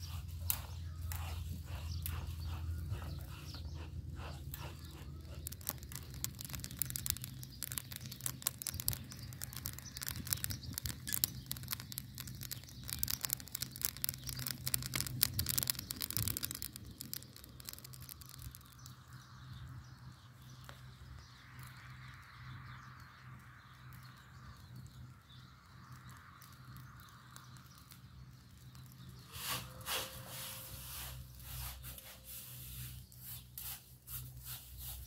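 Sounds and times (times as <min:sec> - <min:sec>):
grain crackling while roasting: 0:00.0 - 0:35.0.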